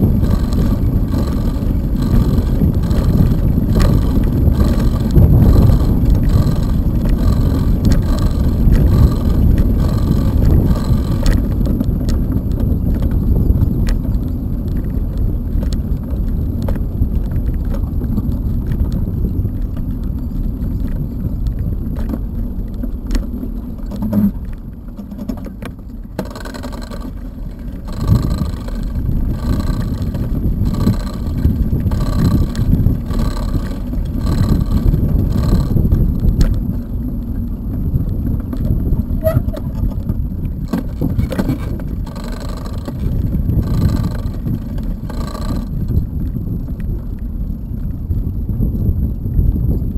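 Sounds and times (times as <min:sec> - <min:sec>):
repeating rattle: 0:00.0 - 0:11.6, 0:26.2 - 0:35.9, 0:40.8 - 0:45.8
bicycle tyres on wooden boardwalk: 0:00.0 - 0:49.9
wind rumble on microphone: 0:00.0 - 0:49.9.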